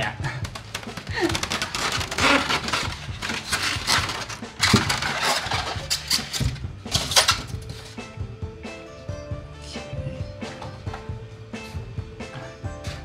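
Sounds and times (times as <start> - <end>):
packaging rustling and knocking: 0.4 - 8.0.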